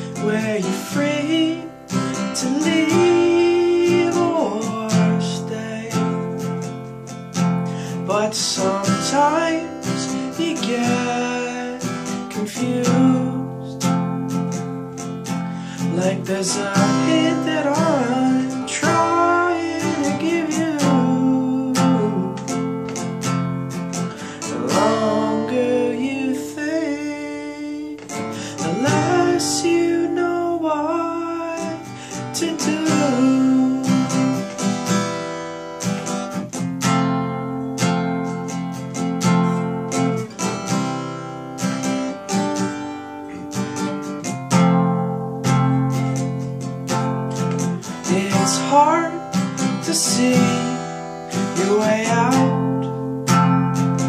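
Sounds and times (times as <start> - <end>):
man singing: 0.0 - 6.6, 7.8 - 14.3, 15.6 - 22.6, 24.0 - 34.7, 47.3 - 54.0
acoustic guitar strumming: 0.0 - 54.0.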